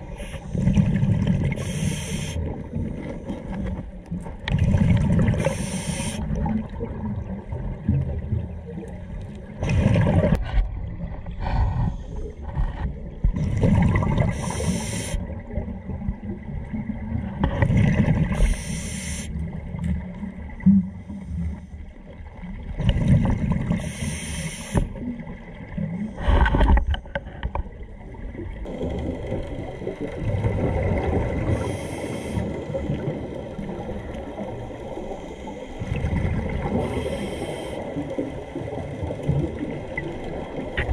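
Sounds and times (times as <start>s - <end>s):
diver breathing through a regulator: 0.0s - 2.6s, 5.3s - 6.4s, 11.2s - 13.6s, 14.2s - 15.3s, 18.3s - 19.4s, 23.7s - 25.0s, 25.9s - 27.5s, 31.4s - 32.8s, 36.6s - 38.1s
low rumble of water: 0.0s - 40.9s
rushing exhaled bubbles: 4.5s - 8.8s, 9.5s - 18.4s, 22.7s - 23.8s, 28.3s - 37.1s.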